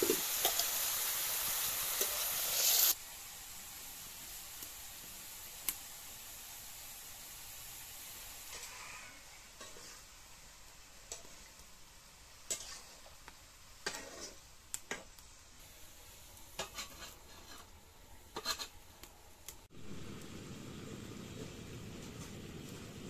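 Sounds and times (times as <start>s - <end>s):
metal spatula scraping a wok: 0.0s - 3.0s, 8.4s - 10.2s, 12.4s - 13.2s, 13.8s - 14.5s, 16.6s - 18.8s
faint steady hiss: 0.0s - 23.0s.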